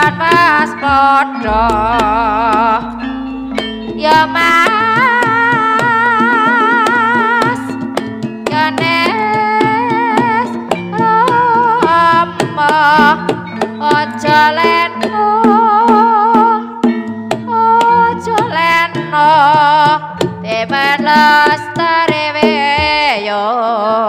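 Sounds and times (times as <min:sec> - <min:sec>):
wavering ornamented melody: 0:00.5 - 0:07.9
sharp drum strokes: 0:00.9 - 0:06.6.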